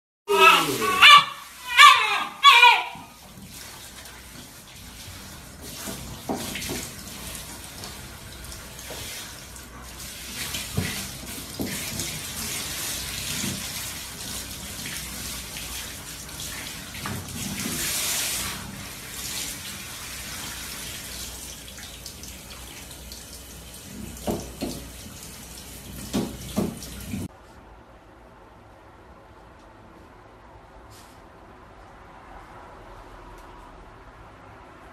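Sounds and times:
shower spraying water: 0:00.3 - 0:27.3
knocks and splashes: 0:05.6 - 0:08.0, 0:10.4 - 0:13.9, 0:23.9 - 0:25.0, 0:25.9 - 0:27.3.

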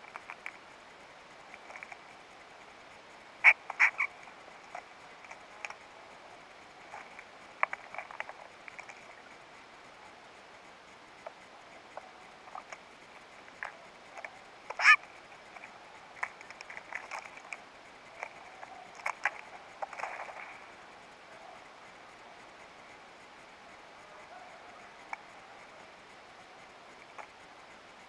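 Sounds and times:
birds pecking taps and clicks: 0:00.1 - 0:00.6, 0:01.5 - 0:02.1, 0:03.5 - 0:05.8, 0:06.9 - 0:09.3, 0:11.2 - 0:20.7
bird wavering call: 0:03.4 - 0:04.2, 0:14.8 - 0:15.0.

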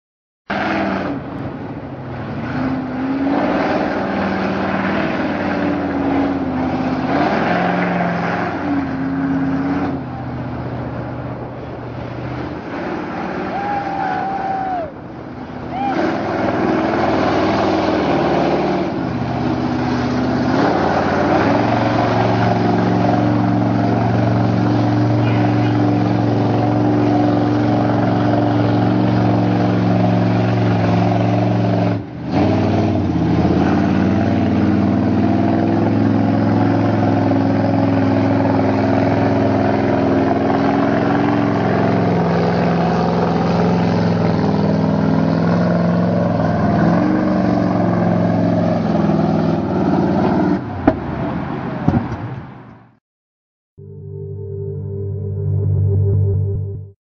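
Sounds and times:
truck engine running hard: 0:00.5 - 0:50.9
sharp knocks: 0:51.9 - 0:52.3.

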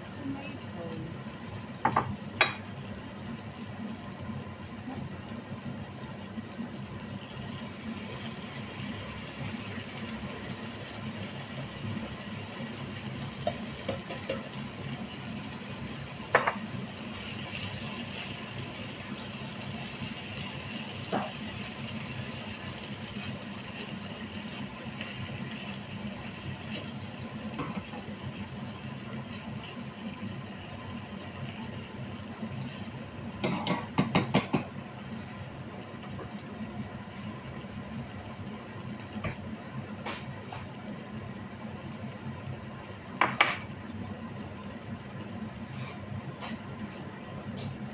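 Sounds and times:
sauce hissing in a pan: 0:02.7 - 0:33.4
spatula knocking against pan: 0:33.4 - 0:34.7.

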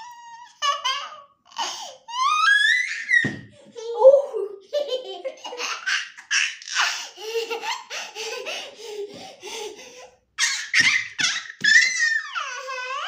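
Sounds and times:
child high-pitched squeal: 0:02.1 - 0:04.5, 0:10.4 - 0:13.0
child laughing and giggling: 0:03.8 - 0:13.0.

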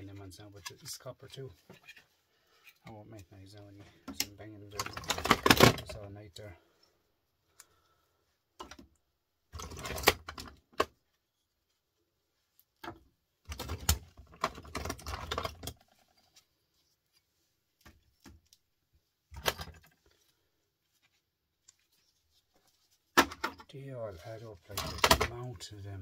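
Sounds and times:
scrap metal parts clattering: 0:04.8 - 0:06.0, 0:24.6 - 0:25.4.

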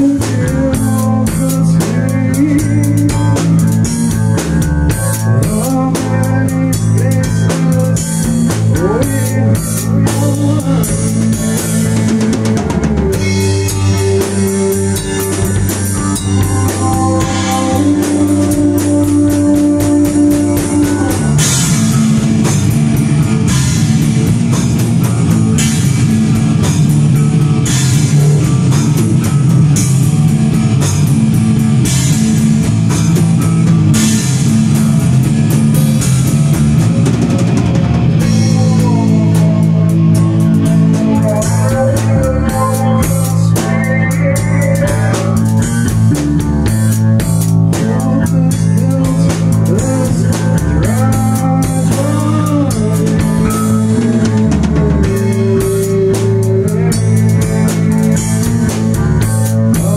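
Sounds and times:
melody with bent notes: 0:00.0 - 0:59.9
rock music: 0:00.0 - 0:59.9.

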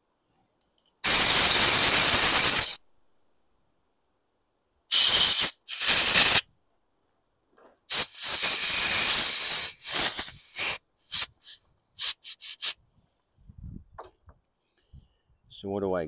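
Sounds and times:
compressed air blow gun blasts: 0:01.0 - 0:02.8, 0:04.9 - 0:06.5, 0:07.9 - 0:12.8.

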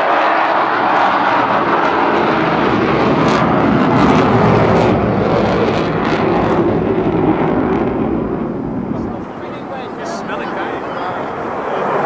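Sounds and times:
loud jet aircraft passing: 0:00.0 - 0:12.0.

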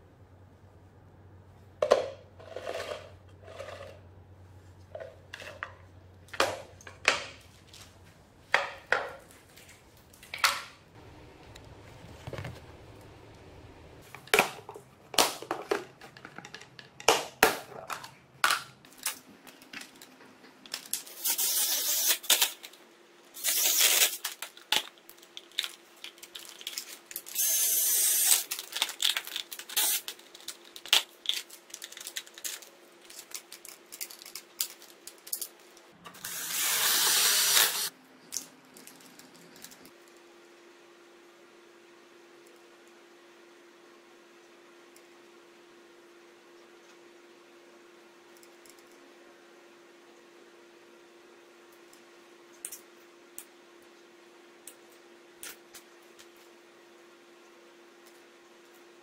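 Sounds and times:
plastic box scraping: 0:02.4 - 0:04.0
metal pieces clicking and knocking: 0:28.1 - 0:35.6.

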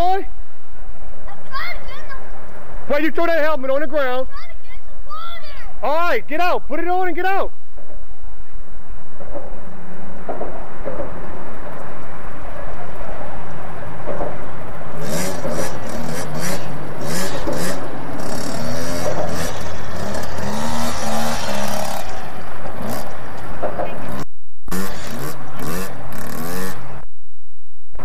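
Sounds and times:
dirt bike engine revving: 0:14.8 - 0:27.0.

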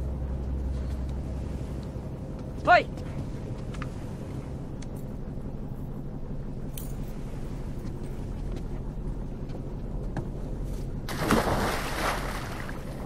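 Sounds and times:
boat engine droning: 0:00.0 - 0:13.0
heavy splash in water: 0:11.1 - 0:13.0.

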